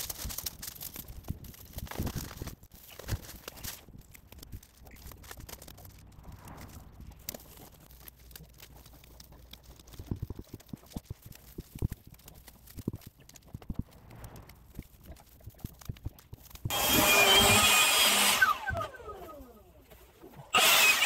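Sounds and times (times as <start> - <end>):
pebbles clicking and knocking: 0.0 - 16.8
hands pulling grass and weeds: 0.0 - 20.6.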